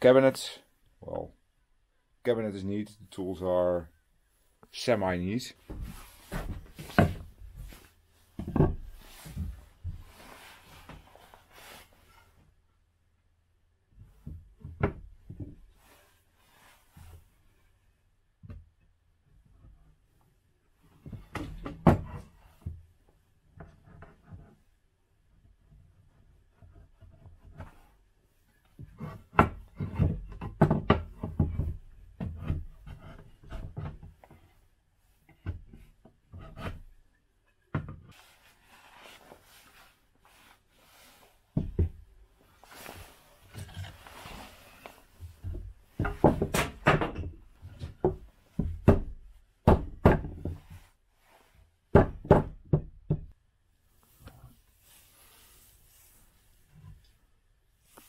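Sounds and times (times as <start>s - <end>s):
soft rubbing noise: 4.3s - 12.4s, 38.1s - 41.6s, 42.2s - 46.0s, 53.9s - 58.0s
wooden knocks and thumps: 5.6s - 7.8s, 8.4s - 10.2s, 14.0s - 15.7s, 21.0s - 22.8s, 28.8s - 34.4s, 35.3s - 36.9s, 37.7s - 38.2s, 41.6s - 50.8s, 51.9s - 53.4s.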